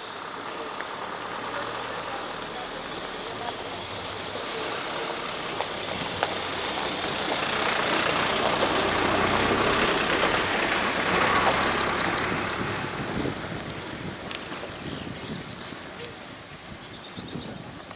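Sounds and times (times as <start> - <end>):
passing vehicle engine: 0.0 - 16.8.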